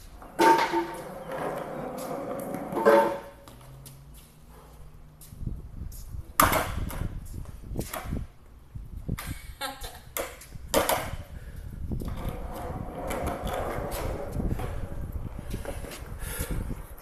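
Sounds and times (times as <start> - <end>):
skateboard wheels rolling on concrete: 0.0 - 17.0
skateboard clacks: 10.1 - 11.2, 12.0 - 15.0.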